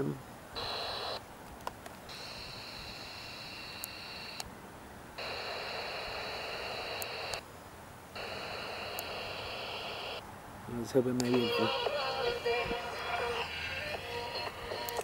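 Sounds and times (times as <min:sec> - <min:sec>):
radio static hiss: 0:00.0 - 0:01.3, 0:02.0 - 0:04.5, 0:05.2 - 0:07.5, 0:08.1 - 0:15.0
steady high whine: 0:00.0 - 0:01.3, 0:02.0 - 0:04.5, 0:05.2 - 0:10.3
faint clicks: 0:03.8 - 0:04.5, 0:06.8 - 0:07.4, 0:08.2 - 0:09.2, 0:13.9 - 0:15.0.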